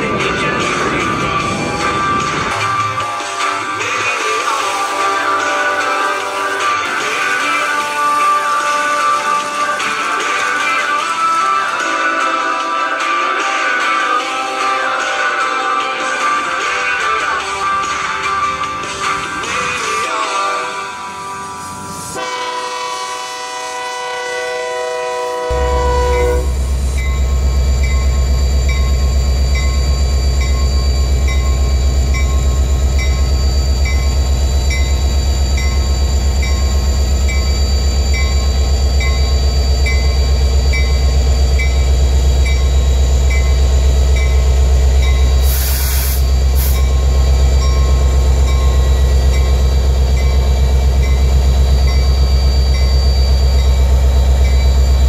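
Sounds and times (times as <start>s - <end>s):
background music: 0.0s - 22.4s
diesel locomotive rumble: 0.0s - 55.0s
short hiss: 45.4s - 46.8s.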